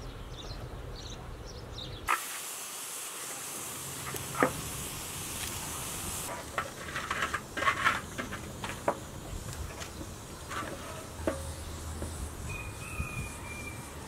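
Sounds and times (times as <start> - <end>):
sharp pops of fire: 2.1 - 12.2
wood fire crackling and hissing: 2.1 - 14.0.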